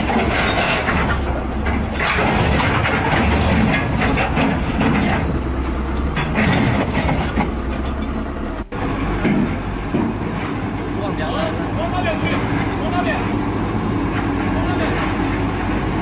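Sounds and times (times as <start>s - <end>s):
metallic clattering and rattling: 0.0s - 8.4s
heavy diesel machinery running: 0.0s - 16.0s.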